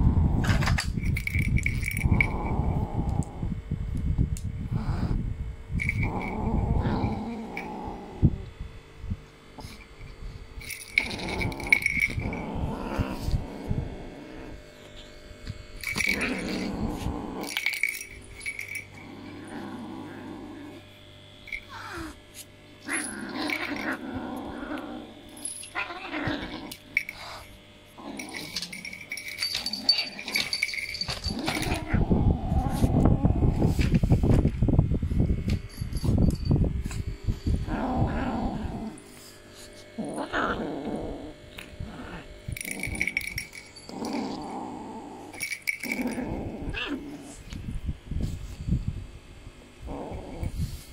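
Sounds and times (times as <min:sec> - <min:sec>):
kitten growling: 0:01.8 - 0:03.6, 0:04.7 - 0:08.6, 0:10.9 - 0:14.8, 0:15.8 - 0:20.9, 0:21.6 - 0:22.2, 0:22.8 - 0:33.8, 0:37.6 - 0:47.6, 0:49.8 - 0:50.9.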